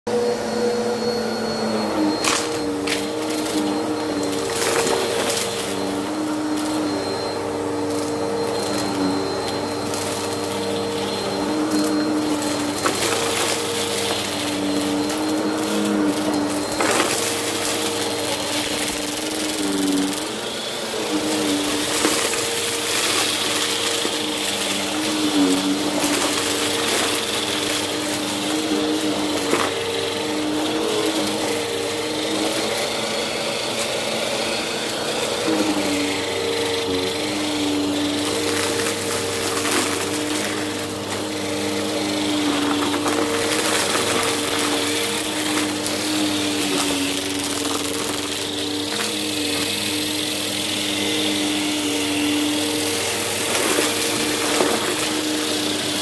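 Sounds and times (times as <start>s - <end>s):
vacuum cleaner motor hum: 0.1s - 56.0s.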